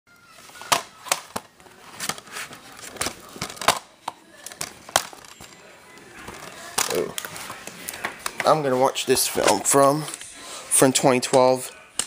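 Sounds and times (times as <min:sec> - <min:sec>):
plastic case clicking and crinkling: 0:00.6 - 0:05.6, 0:06.2 - 0:08.6.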